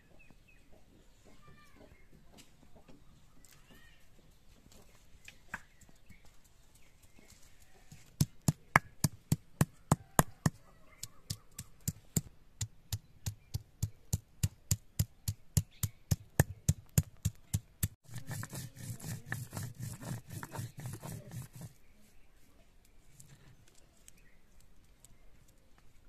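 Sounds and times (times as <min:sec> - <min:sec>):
pestle scraping on grinding stone: 0:16.4 - 0:21.7.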